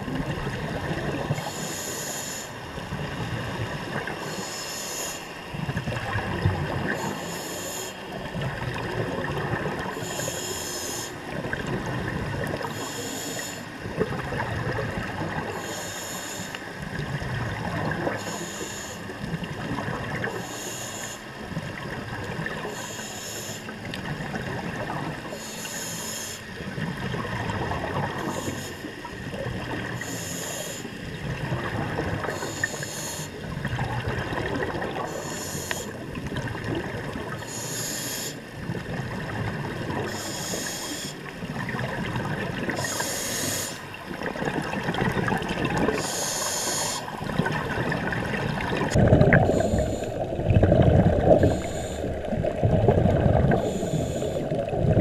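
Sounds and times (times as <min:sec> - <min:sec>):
regulator hissing inhalation: 0:07.0 - 0:08.0, 0:25.4 - 0:26.4, 0:32.4 - 0:33.3, 0:35.1 - 0:36.0, 0:37.4 - 0:38.4, 0:40.1 - 0:41.2, 0:42.8 - 0:43.8, 0:46.0 - 0:47.1, 0:49.4 - 0:50.3, 0:51.3 - 0:52.4, 0:53.5 - 0:54.6
bubbling exhaled breath: 0:22.4 - 0:55.0.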